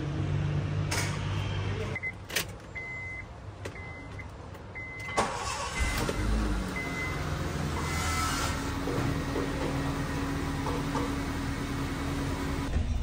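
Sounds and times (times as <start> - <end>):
car engine starting and idling: 0.0 - 13.0.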